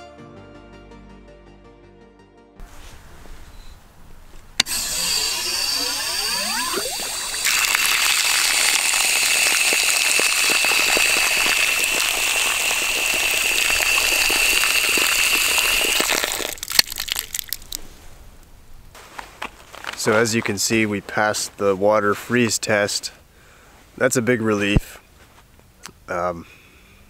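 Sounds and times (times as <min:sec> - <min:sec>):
high whistle: 0:04.6 - 0:12.6
water gushing from spout: 0:04.6 - 0:17.8
water dripping: 0:04.6 - 0:17.9.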